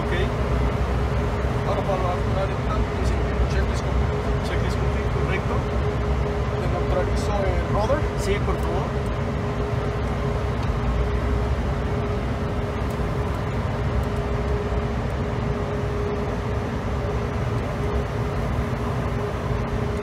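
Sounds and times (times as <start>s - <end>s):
jet cockpit rumble of airflow: 0.0s - 20.0s
thin steady hum: 0.0s - 20.0s.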